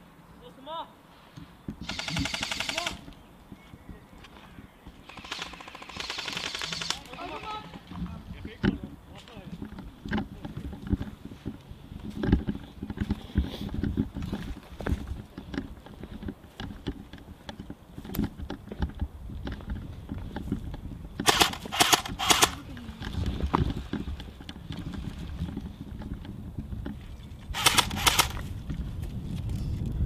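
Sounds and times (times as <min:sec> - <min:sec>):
airsoft gun bursts: 0:01.8 - 0:03.0, 0:05.0 - 0:07.2, 0:21.2 - 0:22.6, 0:27.6 - 0:28.4.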